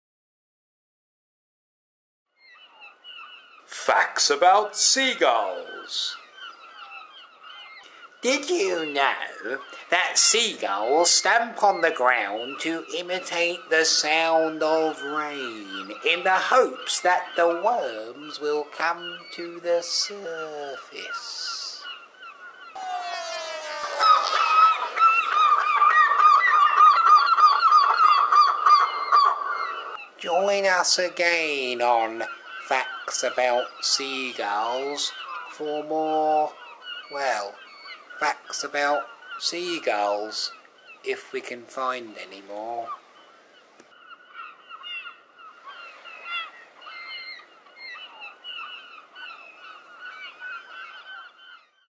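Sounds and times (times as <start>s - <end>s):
gull calling: 2.5s - 41.2s.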